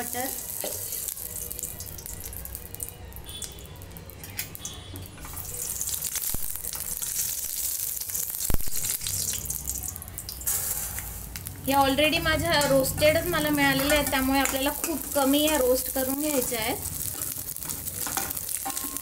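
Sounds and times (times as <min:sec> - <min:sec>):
butter sizzling in pan: 0:00.0 - 0:03.5, 0:04.5 - 0:19.0
metal spoon scraping pan: 0:12.3 - 0:16.5.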